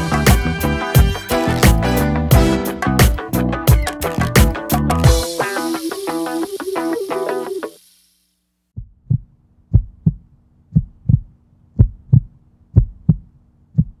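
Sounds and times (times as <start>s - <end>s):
guitar music: 0.0s - 7.8s
heartbeat thumps: 8.8s - 14.0s.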